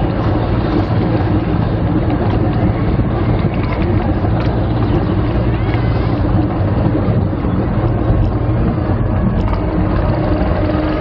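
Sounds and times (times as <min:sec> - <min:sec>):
roller coaster lift rumble: 0:00.0 - 0:11.0
wind buffeting microphone: 0:00.0 - 0:11.0.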